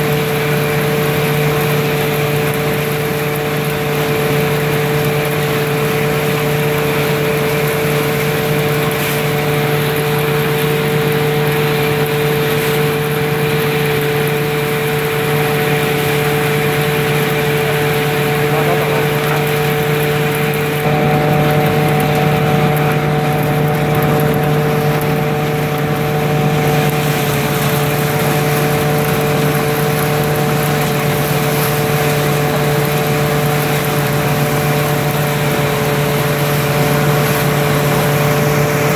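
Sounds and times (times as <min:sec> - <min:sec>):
threshing machine running: 0:00.0 - 0:38.9.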